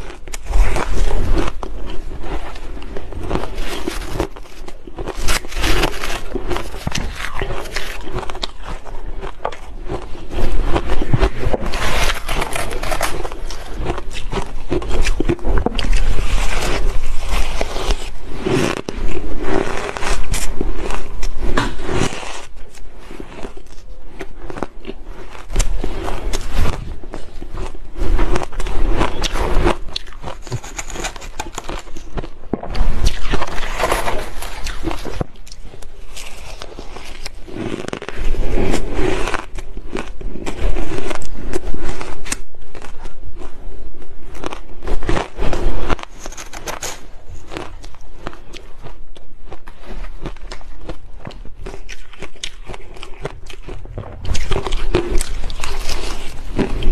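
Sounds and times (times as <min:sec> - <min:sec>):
crunching and chewing ice: 0:00.0 - 0:56.9
metal spoon scraping ice: 0:10.6 - 0:21.0, 0:29.0 - 0:32.1.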